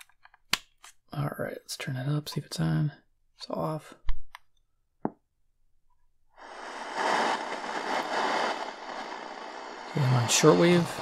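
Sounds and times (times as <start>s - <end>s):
shortwave radio static hiss: 6.4s - 11.0s.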